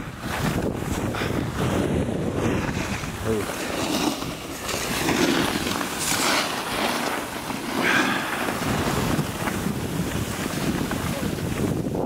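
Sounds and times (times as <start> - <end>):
wind rushing over microphone: 0.0 - 12.0
ski edges scraping snow: 0.1 - 12.0.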